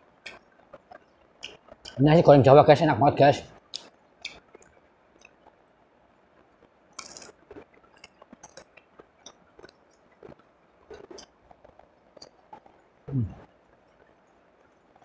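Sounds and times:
chewing crunches: 0:00.2 - 0:02.0, 0:06.9 - 0:12.8
fingers tearing crispy food: 0:07.0 - 0:12.8.

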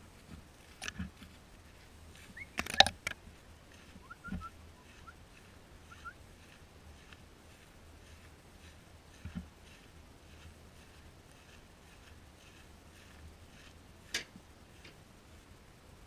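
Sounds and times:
faint bird chirps: 0:02.2 - 0:02.9, 0:04.0 - 0:05.2, 0:05.8 - 0:06.2
sharp clicks and knocks: 0:02.5 - 0:03.2.

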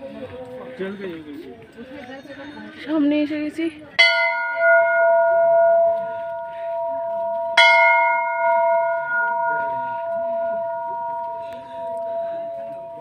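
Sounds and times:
brass bell ringing: 0:04.0 - 0:13.0.

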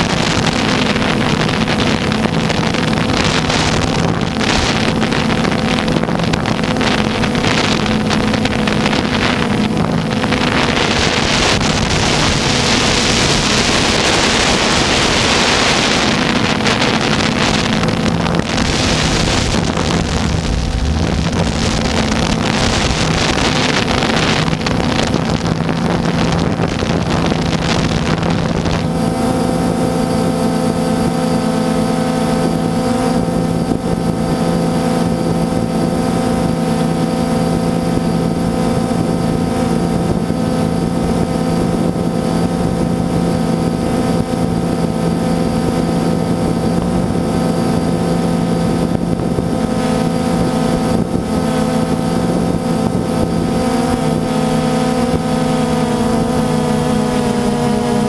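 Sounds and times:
drone motors humming: 0:00.0 - 0:58.0
wind on microphone: 0:00.0 - 0:58.0.

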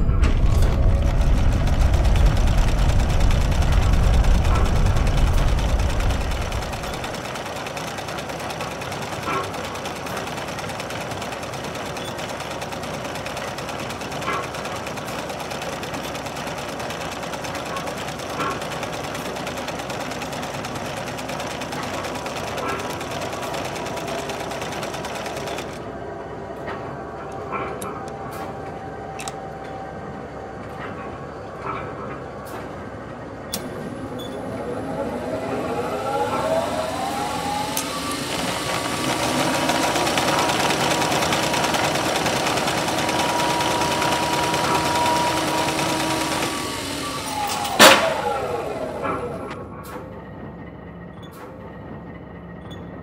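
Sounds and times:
low mechanical rumble: 0:00.0 - 0:08.6
sewing machine clatter: 0:00.3 - 0:25.9, 0:37.8 - 0:49.4.

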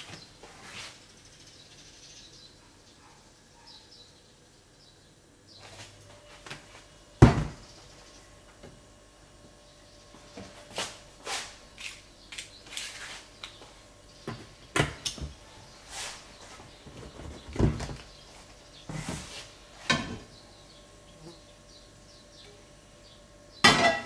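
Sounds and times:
knocks and clatters of kitchenware: 0:07.2 - 0:07.6, 0:19.8 - 0:20.3, 0:23.6 - 0:24.0.

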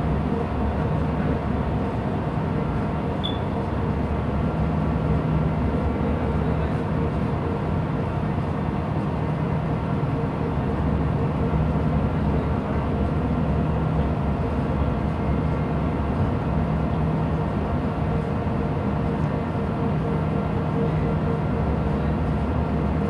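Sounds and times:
ship machinery drone: 0:00.0 - 0:23.0.

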